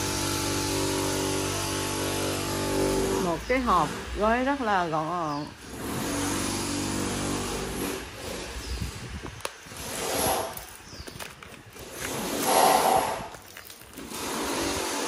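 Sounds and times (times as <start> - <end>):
paper rustling and ripping: 9.5 - 15.0.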